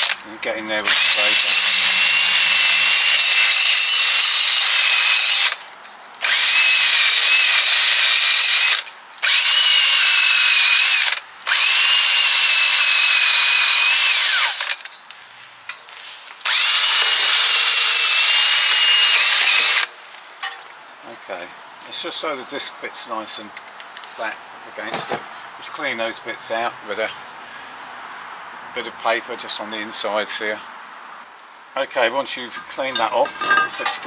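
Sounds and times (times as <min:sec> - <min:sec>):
drill with wire brush scouring metal: 0:00.9 - 0:05.6, 0:06.2 - 0:14.9, 0:16.4 - 0:19.9.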